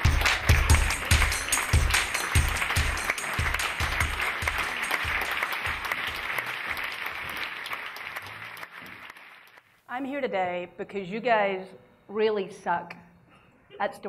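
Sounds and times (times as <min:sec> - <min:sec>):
walk-on music with steady beat: 0:00.0 - 0:06.2
audience applauding: 0:00.0 - 0:09.7.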